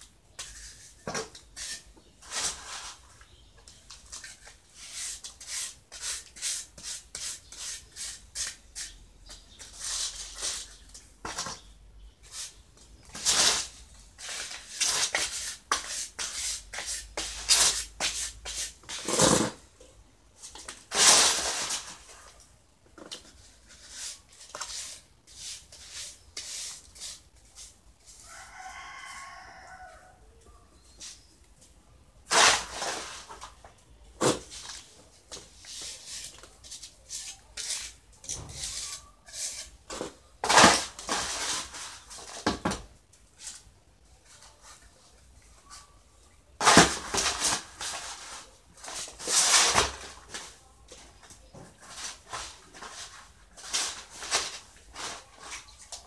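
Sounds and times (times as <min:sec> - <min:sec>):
trowel scraping mortar: 0:00.4 - 0:03.2, 0:04.1 - 0:11.6, 0:13.1 - 0:19.6, 0:20.5 - 0:22.1, 0:23.1 - 0:27.8, 0:32.3 - 0:33.5, 0:34.2 - 0:42.2.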